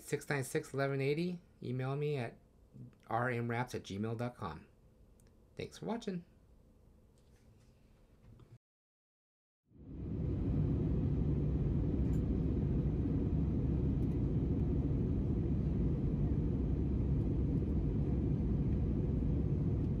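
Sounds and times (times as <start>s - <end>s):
airliner cabin engine rumble: 9.8s - 20.0s.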